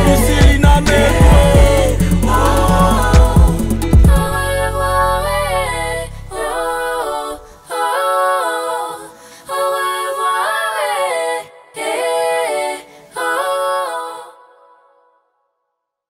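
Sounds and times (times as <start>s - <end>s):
low beat of backing music: 0.0s - 4.9s
person singing unaccompanied: 0.0s - 12.5s.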